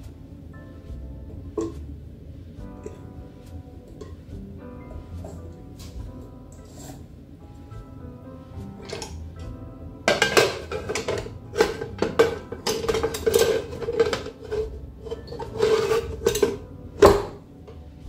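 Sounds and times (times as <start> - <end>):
pressure cooker lid clanking: 10.1 - 17.4.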